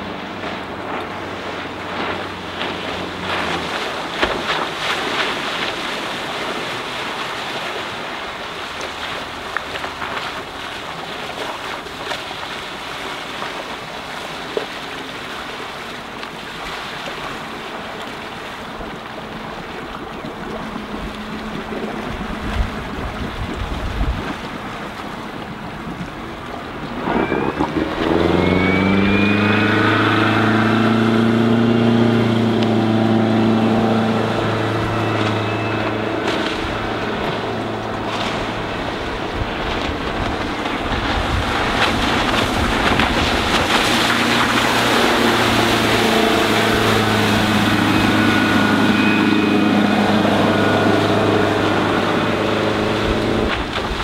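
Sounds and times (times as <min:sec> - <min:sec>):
boat engine: 0:00.0 - 0:54.0
water noise: 0:00.0 - 0:54.0
wind: 0:00.0 - 0:54.0.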